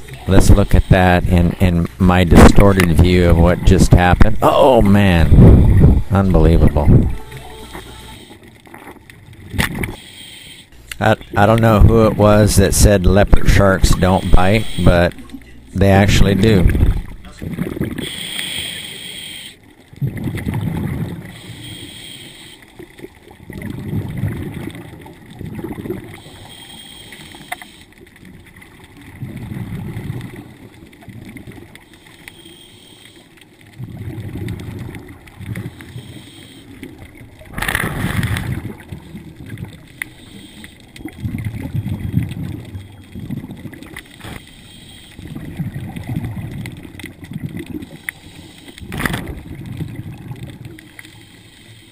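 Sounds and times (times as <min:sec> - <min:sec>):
underwater bubbles gurgling: 0:00.0 - 0:51.9
regulator inhalation hiss: 0:09.9 - 0:10.7, 0:18.0 - 0:19.6, 0:21.3 - 0:22.7, 0:26.2 - 0:27.9, 0:31.9 - 0:33.3, 0:35.7 - 0:36.8, 0:40.1 - 0:40.9, 0:44.4 - 0:45.2, 0:48.0 - 0:48.8, 0:51.0 - 0:51.9.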